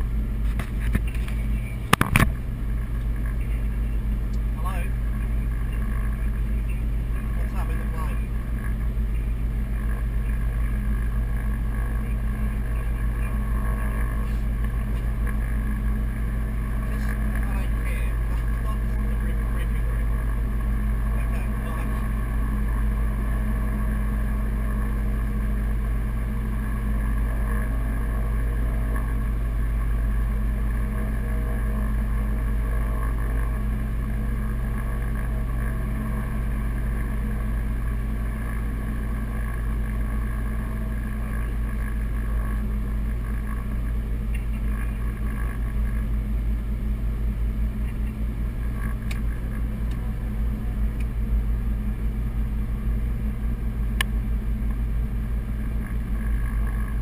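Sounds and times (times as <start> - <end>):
airplane engines and propellers droning: 0.0 - 57.0.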